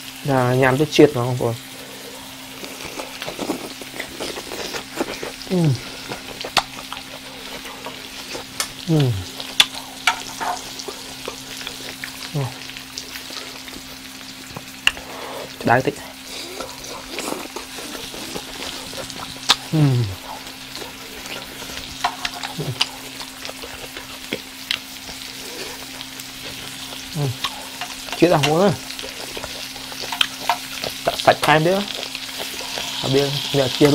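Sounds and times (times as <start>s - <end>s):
food sizzling on a grill pan: 0.0s - 33.9s
person making short voice sounds: 8.9s - 9.3s, 19.7s - 20.2s, 27.1s - 27.4s
chopsticks clicking against pan: 27.4s - 33.0s.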